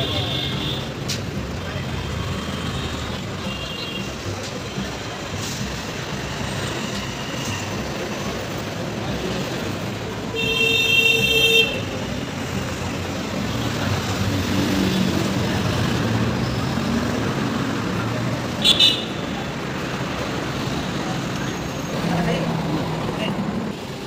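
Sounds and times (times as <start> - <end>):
city street noise: 0.0 - 24.0
vehicle horn honking: 10.3 - 11.9, 18.6 - 19.2.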